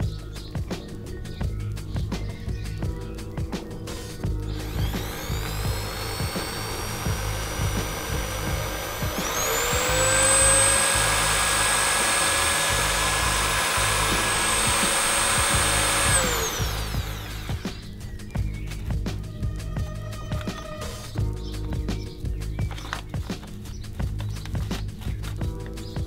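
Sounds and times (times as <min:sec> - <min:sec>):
electric drill whine: 0:04.3 - 0:18.0.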